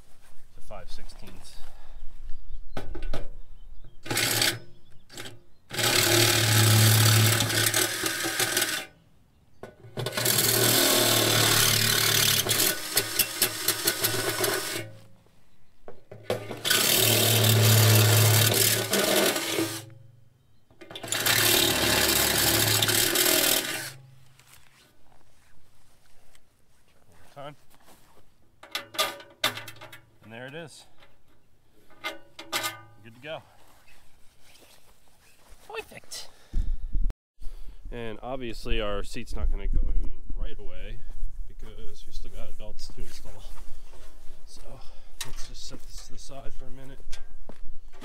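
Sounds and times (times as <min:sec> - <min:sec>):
cordless drill boring metal: 0:04.0 - 0:08.9, 0:10.0 - 0:14.9, 0:16.3 - 0:19.9, 0:20.8 - 0:24.0.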